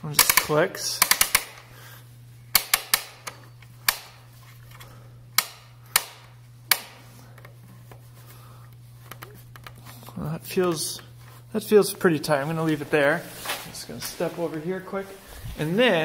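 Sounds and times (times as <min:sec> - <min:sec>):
ratchet clicks: 0:00.2 - 0:01.6.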